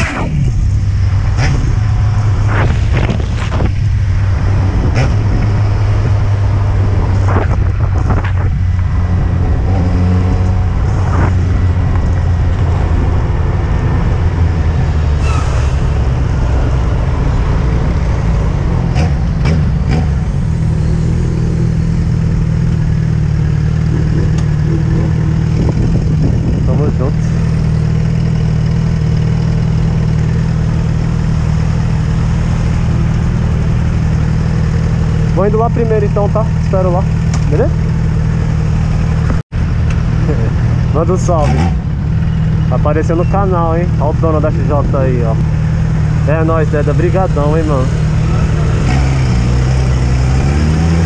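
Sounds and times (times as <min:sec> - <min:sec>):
wind and road noise: 0:00.0 - 0:51.0
motorcycle engine running: 0:16.2 - 0:51.0.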